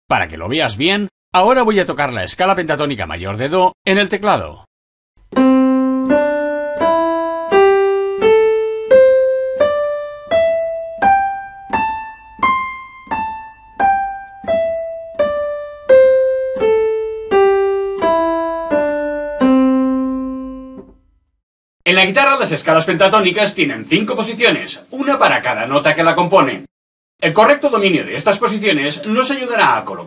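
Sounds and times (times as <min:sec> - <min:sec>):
digital piano scale: 0:05.2 - 0:21.1.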